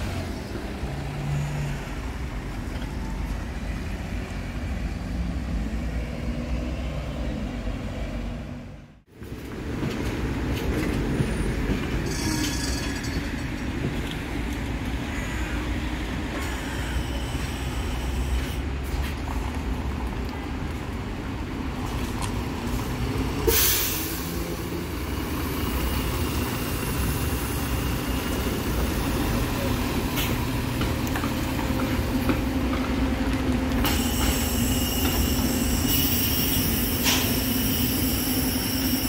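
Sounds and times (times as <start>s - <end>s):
bus engine rumbling: 0.0s - 39.0s
air brakes hissing: 16.4s - 18.6s, 23.4s - 24.7s, 33.8s - 39.0s.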